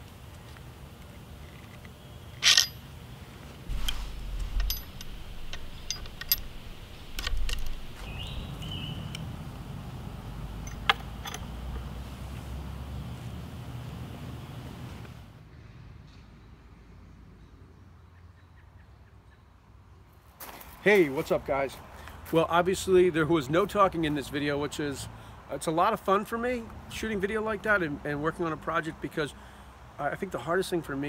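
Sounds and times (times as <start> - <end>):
metal snap hook and chain clinks: 2.4 - 2.8, 3.7 - 8.4, 10.6 - 11.5.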